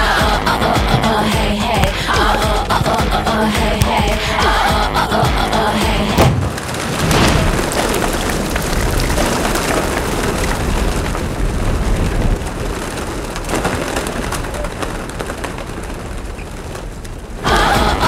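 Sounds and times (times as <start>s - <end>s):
sudden thud: 6.2s - 7.7s
pigeon wings flapping: 6.2s - 18.0s.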